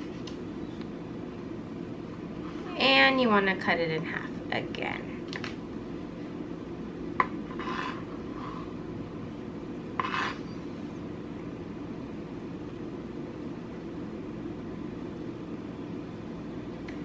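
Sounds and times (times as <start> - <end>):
knife slicing and scraping: 7.5 - 8.7, 10.0 - 10.5.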